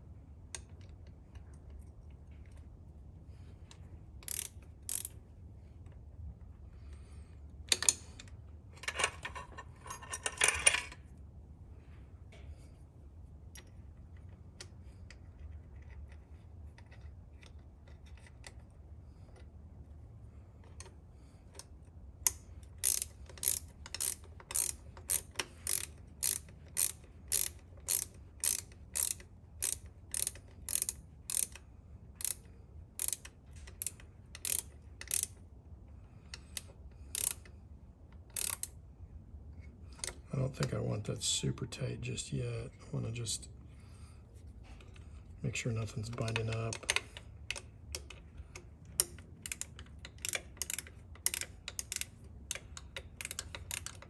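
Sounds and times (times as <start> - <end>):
ratcheting wrench clicking: 3.6 - 5.2, 7.6 - 11.0, 20.6 - 35.4, 36.2 - 38.8, 45.9 - 54.0.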